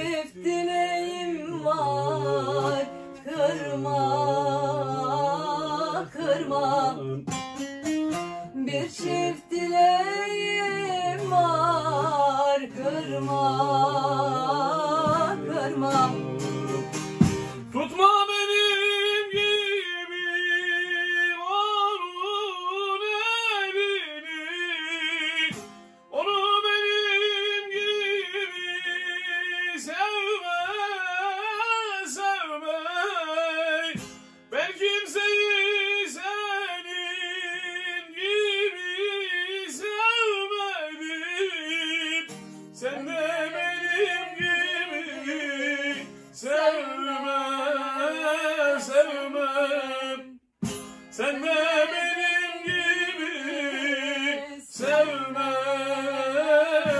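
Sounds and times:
man and woman singing duet: 0.0 - 7.4, 8.5 - 25.5, 34.6 - 50.4, 51.1 - 56.9
plucked lute accompaniment: 6.0 - 18.0, 25.5 - 26.0, 34.0 - 34.7, 50.6 - 55.2.

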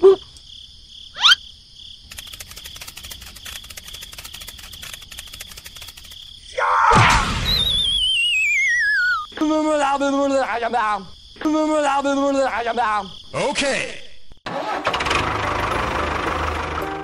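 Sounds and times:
crickets chirping: 0.0 - 14.4
wavering falling whistle: 7.3 - 9.3.

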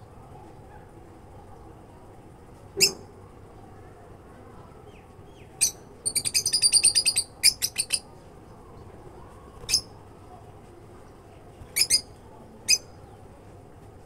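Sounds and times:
lovebirds chirping: 4.8 - 8.1, 9.5 - 9.9, 11.6 - 13.3.

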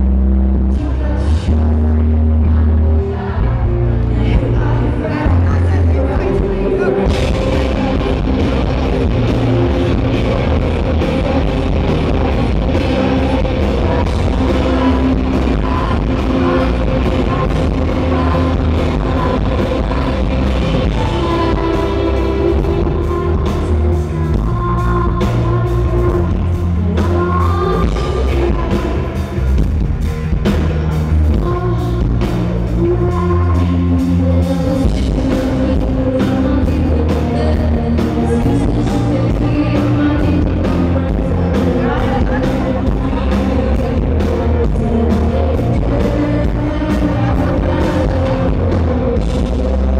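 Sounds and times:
live rock band playing: 0.0 - 49.9
woman singing: 0.6 - 29.7, 31.2 - 49.9.

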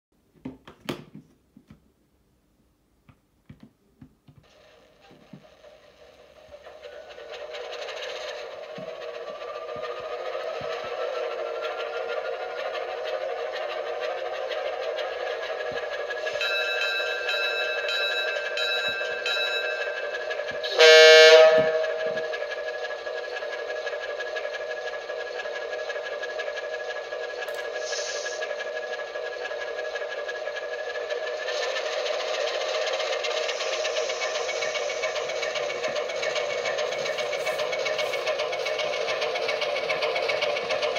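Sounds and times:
diesel locomotive sound from loudspeaker: 4.5 - 40.9
air horn blast: 20.7 - 22.2.

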